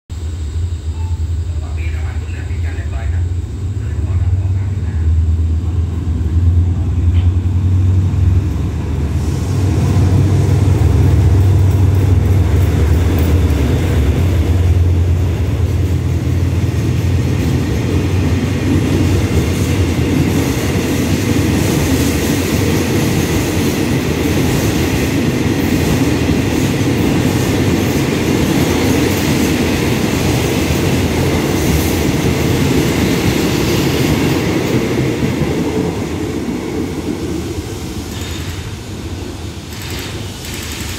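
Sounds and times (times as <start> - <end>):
diesel locomotive engine droning: 0.1 - 40.9
train wheels rattling on rails: 1.6 - 40.9.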